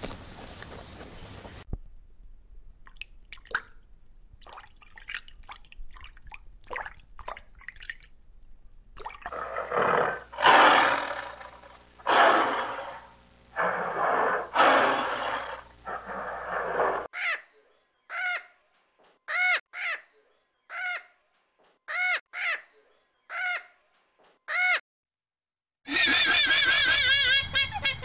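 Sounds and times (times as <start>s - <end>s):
faint water drips: 2.8s - 9.3s.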